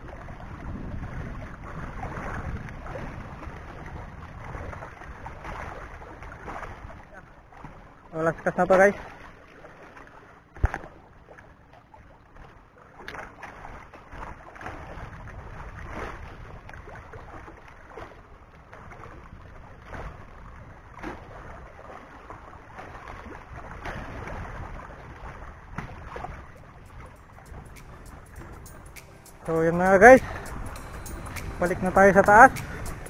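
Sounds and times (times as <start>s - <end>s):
wind buffeting microphone: 0.0s - 5.8s, 23.2s - 33.0s
waves lapping against rocks: 0.0s - 33.0s
sharp click: 27.0s - 29.5s, 30.2s - 33.0s.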